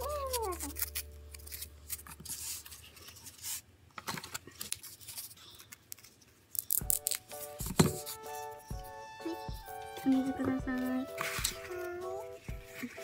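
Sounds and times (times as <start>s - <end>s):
scissors snipping: 0.0s - 2.2s.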